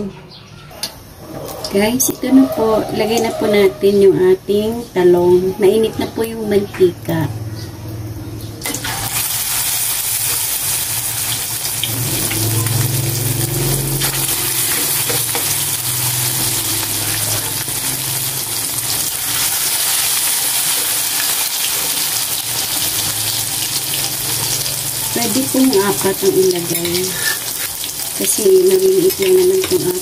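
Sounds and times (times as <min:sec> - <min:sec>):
eggplant frying in hot oil: 0:08.6 - 0:30.0.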